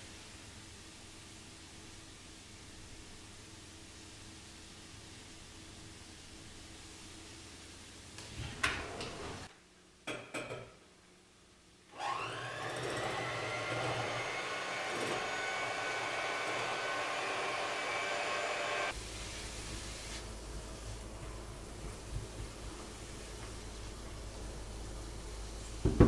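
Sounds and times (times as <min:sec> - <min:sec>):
electric hand mixer whirring: 0:12.0 - 0:19.0.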